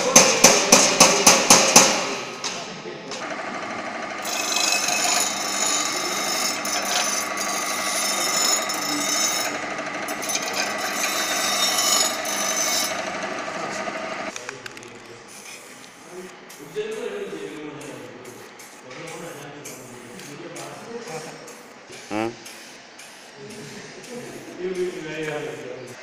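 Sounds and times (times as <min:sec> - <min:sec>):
bench grinder grinding steel: 0:03.2 - 0:14.3
grinder motor hum: 0:03.2 - 0:14.3.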